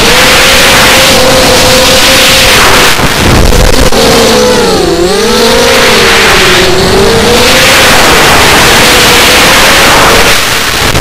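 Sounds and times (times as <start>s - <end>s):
drone motors whining: 0.0s - 11.0s
rush of air: 2.4s - 4.6s.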